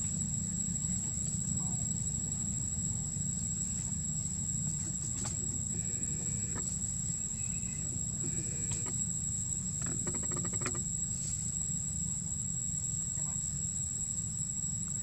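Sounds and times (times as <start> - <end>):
high-pitched insect drone: 0.0 - 15.0
faint chirps: 4.6 - 11.6.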